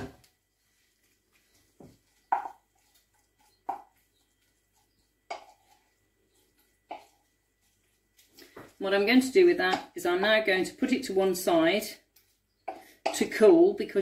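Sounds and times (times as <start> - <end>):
utensil knocking against frying pan: 2.3 - 2.6.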